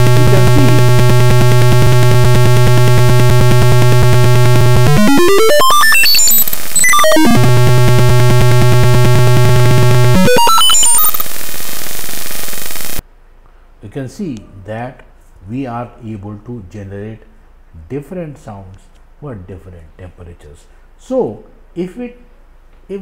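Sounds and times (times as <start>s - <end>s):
harsh buzzer tone: 0.0s - 13.0s.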